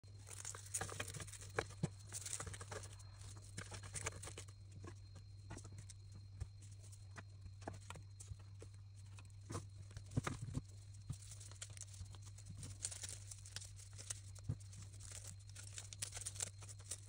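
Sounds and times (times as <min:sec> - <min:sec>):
eggs clicking on leaves: 0:00.0 - 0:17.0
faint low hum: 0:00.0 - 0:17.0
cabbage leaves crackling and snapping: 0:00.1 - 0:04.5, 0:10.0 - 0:17.0.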